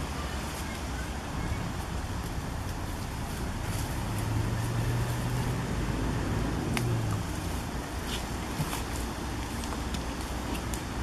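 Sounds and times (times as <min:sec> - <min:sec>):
low engine hum: 0:00.0 - 0:11.0
rustling leaves and twigs: 0:00.0 - 0:11.0
twig snapping: 0:06.7 - 0:07.0.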